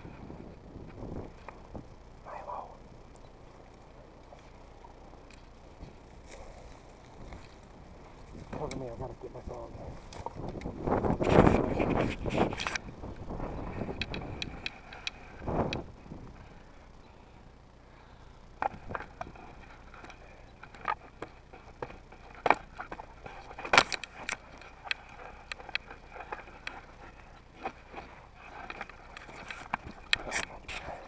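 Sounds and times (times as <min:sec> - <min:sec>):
dry twigs snapping: 0:05.2 - 0:16.0, 0:18.6 - 0:31.0
footsteps through dry brush: 0:05.4 - 0:16.0.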